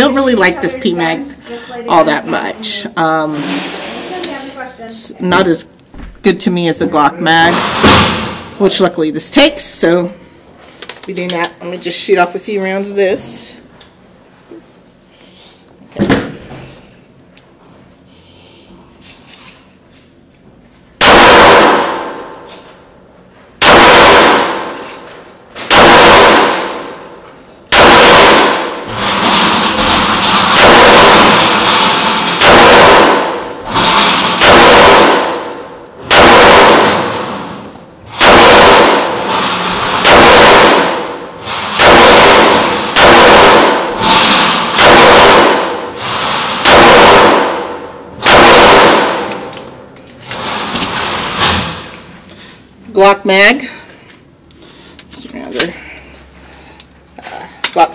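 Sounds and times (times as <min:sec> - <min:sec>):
pistol shots echoing indoors: 0:21.0 - 0:22.6, 0:23.6 - 0:49.9.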